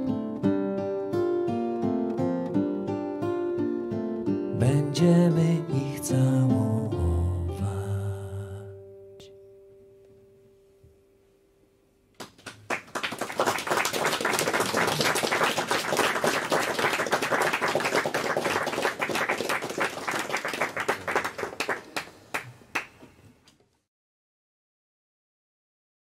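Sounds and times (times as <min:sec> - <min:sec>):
audience applause: 0:12.2 - 0:23.0.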